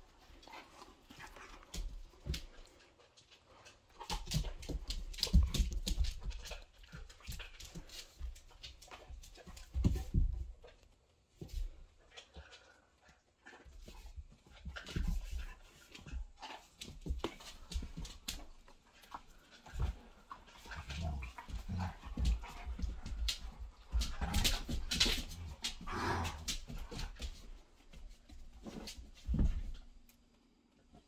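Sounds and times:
dogs mouthing and panting: 12.1s - 27.4s.

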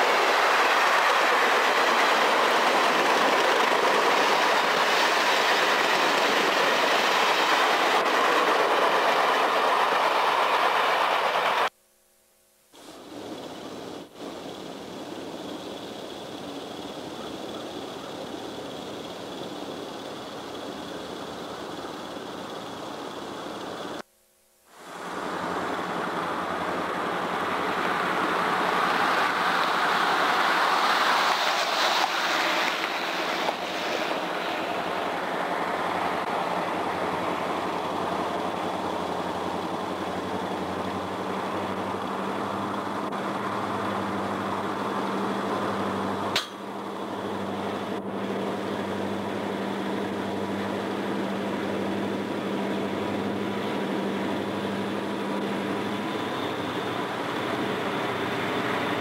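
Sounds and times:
diesel locomotive engine drone: 0.0s - 11.7s, 12.8s - 24.0s, 24.8s - 59.0s
sharp click: 46.4s - 46.6s.

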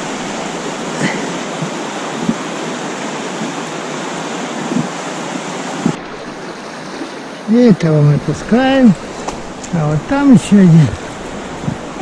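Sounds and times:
river rushing over rapids: 0.0s - 12.0s.

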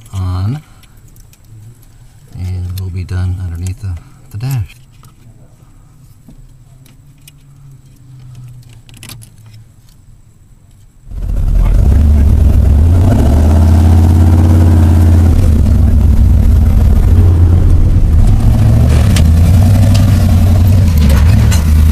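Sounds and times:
pickup truck engine revving: 11.1s - 21.9s.

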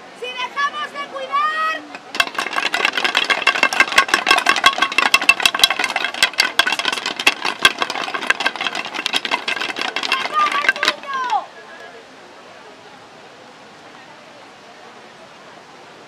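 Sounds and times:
wooden staffs knocking on stone: 1.9s - 11.4s.

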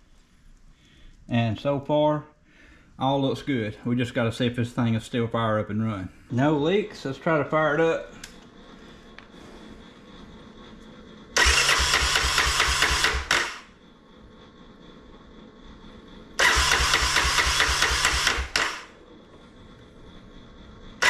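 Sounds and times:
engine cranking on starter: 11.3s - 13.8s, 16.4s - 19.0s.

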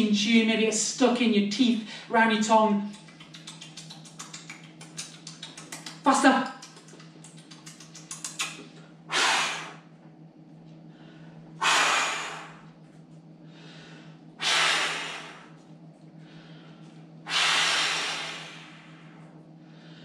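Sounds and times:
mouth clicks from chewing: 2.9s - 8.8s
man blowing air: 9.1s - 9.9s, 11.6s - 12.7s, 14.4s - 15.6s, 17.3s - 19.3s
faint breaths: 10.8s - 12.7s, 13.4s - 20.0s.

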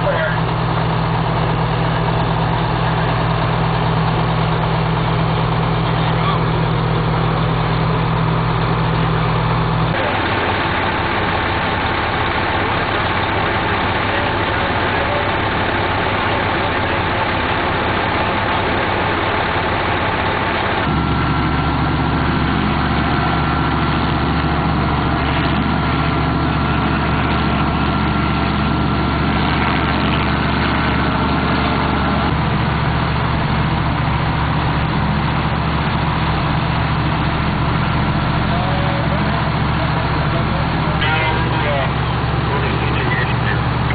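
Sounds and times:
truck engines idling: 0.0s - 43.9s.

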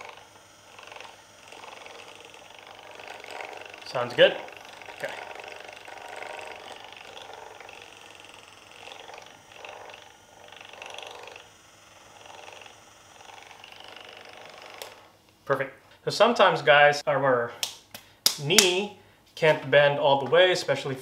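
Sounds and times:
massage gun buzzing: 0.0s - 15.6s.

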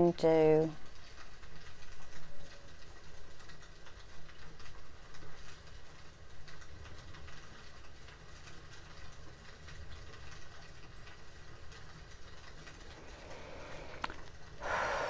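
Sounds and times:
faint ticks: 0.9s - 15.0s
steady low hum: 12.6s - 15.0s.

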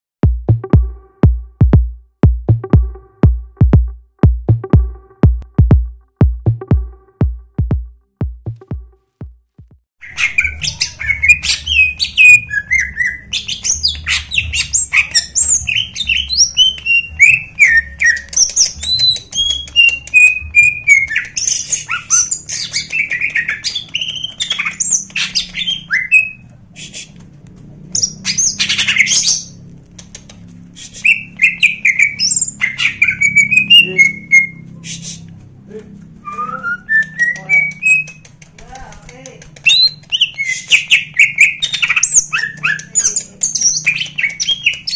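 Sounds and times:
bird singing: 10.0s - 26.5s, 28.0s - 29.7s, 30.3s - 35.0s, 39.6s - 44.9s.

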